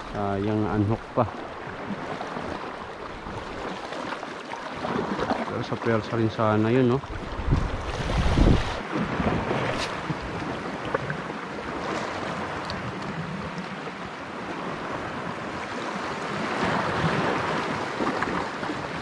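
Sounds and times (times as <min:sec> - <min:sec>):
sea surf on rocky shore: 0:00.0 - 0:19.0
wind on microphone: 0:07.0 - 0:19.0.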